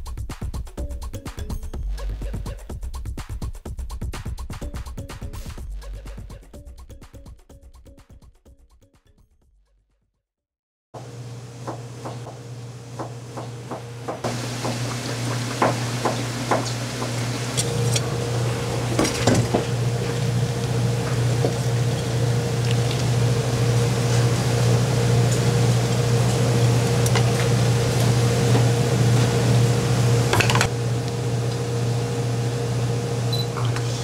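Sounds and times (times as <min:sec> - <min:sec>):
kitchen equipment hum: 0:11.0 - 0:34.0
frying oil hiss: 0:14.2 - 0:32.9
dishes and utensils clinking: 0:14.9 - 0:18.1, 0:18.9 - 0:19.8, 0:30.3 - 0:30.7.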